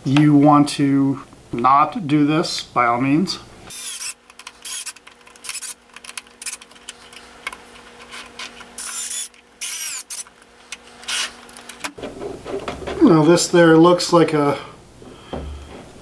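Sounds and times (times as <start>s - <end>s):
electric screwdriver whirring: 3.7s - 5.8s, 8.8s - 10.3s, 11.0s - 11.3s.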